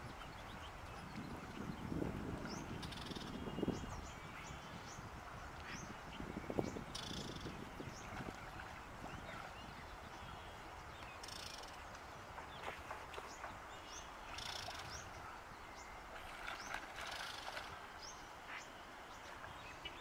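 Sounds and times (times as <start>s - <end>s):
birds chirping: 0.0s - 20.0s
water splashing: 7.2s - 18.5s.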